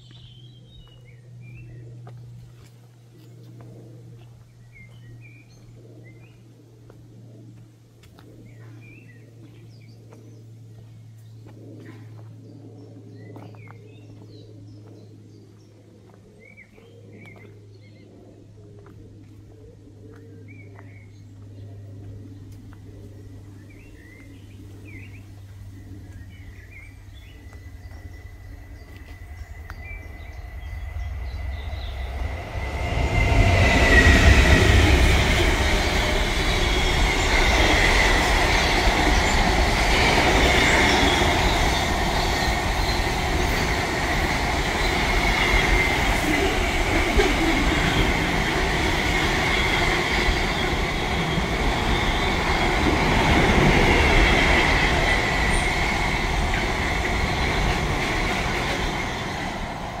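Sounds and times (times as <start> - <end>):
loud steady rumbling: 18.9 - 60.0.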